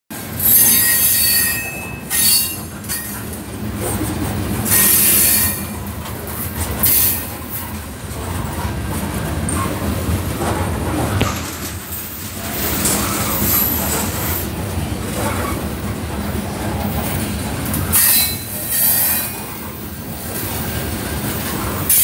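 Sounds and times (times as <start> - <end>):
wheels rumbling on rails: 0.1 - 22.0
high-pitched wheel squeal: 0.4 - 3.1, 17.9 - 19.5.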